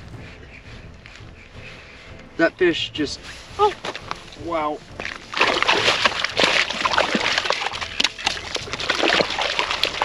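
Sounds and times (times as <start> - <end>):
water sloshing and splashing: 3.4 - 10.0.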